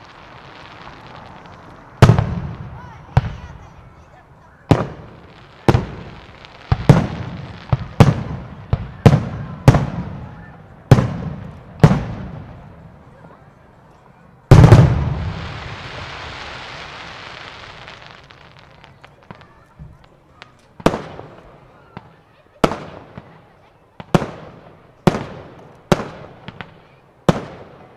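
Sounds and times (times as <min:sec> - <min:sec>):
firework hiss: 0:00.0 - 0:03.8, 0:14.5 - 0:21.5
loud firework bang: 0:14.5 - 0:16.3.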